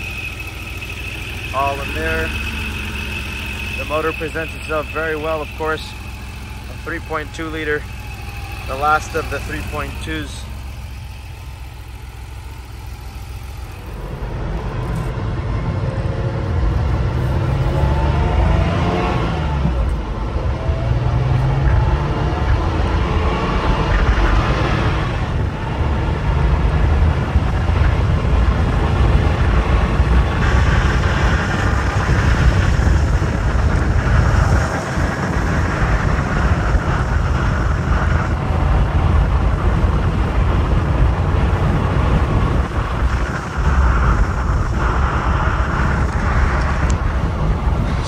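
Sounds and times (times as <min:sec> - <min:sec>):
car engine cruising: 0:00.0 - 0:48.0
wind rush: 0:13.3 - 0:48.0.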